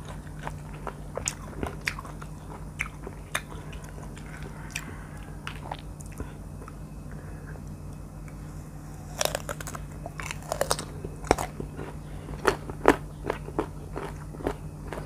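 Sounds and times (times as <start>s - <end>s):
crunching into crisp mango: 9.0s - 15.0s.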